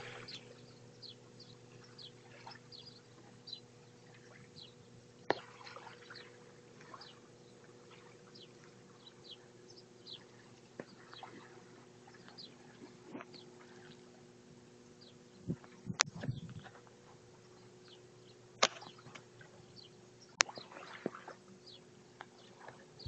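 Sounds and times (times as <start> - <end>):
small birds chirping: 0.0 - 5.0, 5.8 - 14.1, 14.9 - 16.8, 17.4 - 20.9, 21.6 - 22.7
steady low hum: 0.0 - 23.0
sharp click: 18.6 - 19.2.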